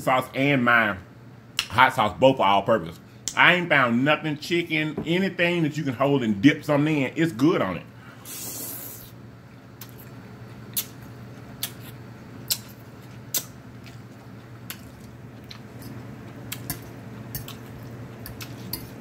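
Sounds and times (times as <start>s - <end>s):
faint steady hum: 0.0s - 19.0s
chewing and lip smacking: 9.8s - 19.0s
wet mouth clicks: 10.7s - 11.0s, 11.6s - 13.6s.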